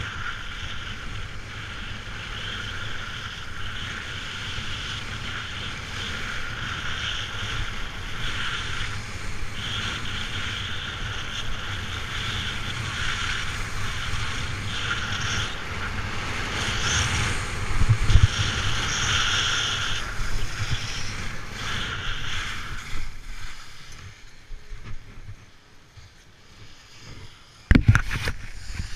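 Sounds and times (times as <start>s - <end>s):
wind rumbling on microphone: 0.0s - 28.9s
skis scraping over hard snow: 26.5s - 28.9s.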